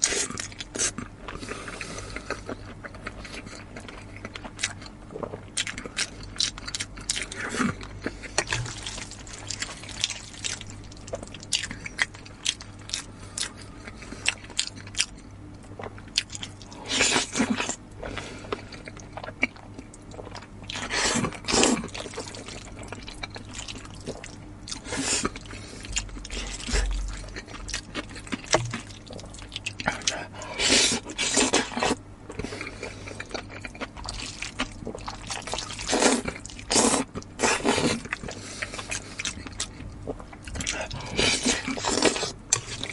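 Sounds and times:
chewing and wet mouth clicks: 22.2 - 30.2
slurping noodles: 34.1 - 39.0.

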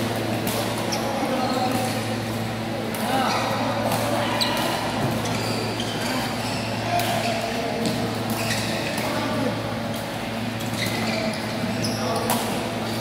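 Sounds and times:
shoes squeaking on court floor: 0.0 - 13.0
steady low hum: 0.0 - 13.0
racket hitting shuttlecock: 0.1 - 1.0.

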